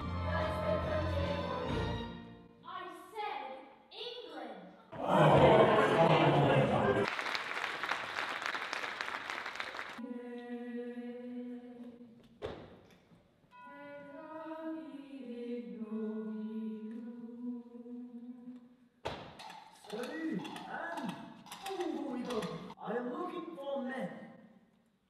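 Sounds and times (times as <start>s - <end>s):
audience applause: 5.0s - 10.0s.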